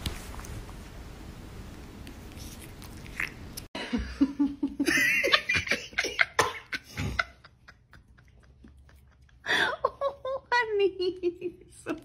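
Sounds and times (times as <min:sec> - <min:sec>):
person laughing: 0:03.8 - 0:12.0.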